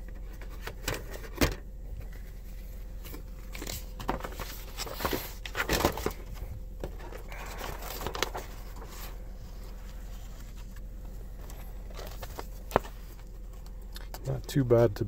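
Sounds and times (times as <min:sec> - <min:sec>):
low steady hum: 0:00.0 - 0:15.0
paper rustling and pages turning: 0:03.0 - 0:14.2.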